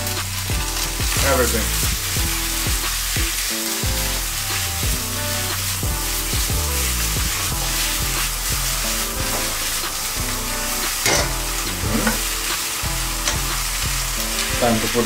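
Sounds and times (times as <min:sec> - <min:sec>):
faint background music: 0:00.0 - 0:15.0
vegetables sizzling in a wok: 0:00.0 - 0:15.0
wooden spoon scraping wok: 0:03.4 - 0:15.0.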